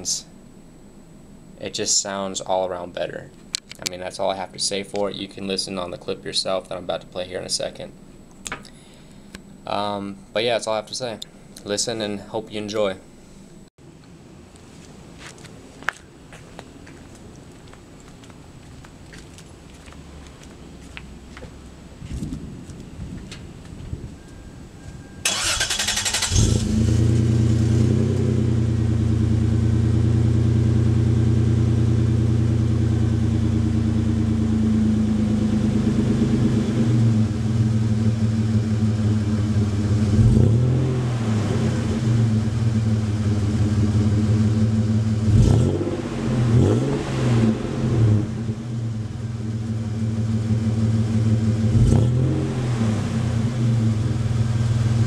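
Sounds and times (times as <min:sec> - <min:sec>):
car engine idling: 0:25.2 - 0:45.5, 0:47.6 - 0:52.0, 0:53.0 - 0:55.0
starter motor cranking: 0:25.3 - 0:26.7
engine revving: 0:25.3 - 0:55.0.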